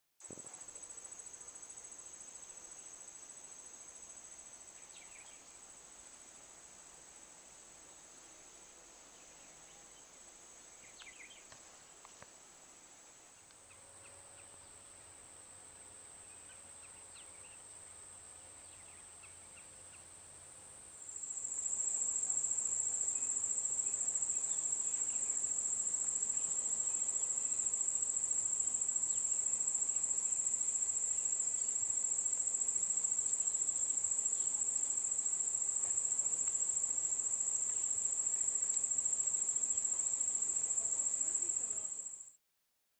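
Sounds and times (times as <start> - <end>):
insects trilling: 21.0 - 42.4.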